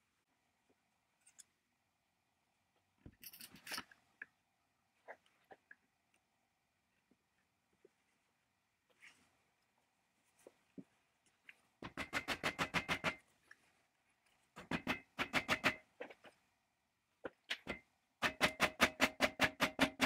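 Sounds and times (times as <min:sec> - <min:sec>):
faint clicks of parts handled: 0:00.7 - 0:01.6, 0:02.7 - 0:04.4.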